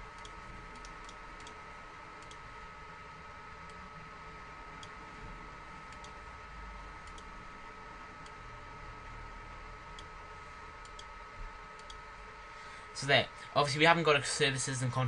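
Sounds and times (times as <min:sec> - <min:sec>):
thin steady whine: 0:00.0 - 0:15.0
computer mouse clicks: 0:00.2 - 0:01.6, 0:02.2 - 0:02.4, 0:04.8 - 0:05.0, 0:05.9 - 0:06.2, 0:07.0 - 0:07.3, 0:10.8 - 0:11.1, 0:11.7 - 0:12.0.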